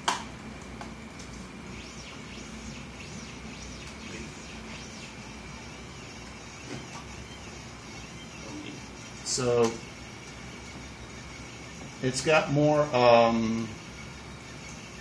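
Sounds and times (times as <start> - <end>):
stepper motors whining: 1.6 - 15.0.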